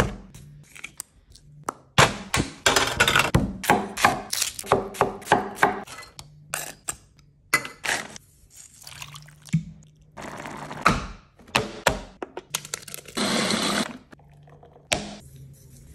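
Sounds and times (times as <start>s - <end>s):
knife chopping on wooden board: 3.3s - 5.9s.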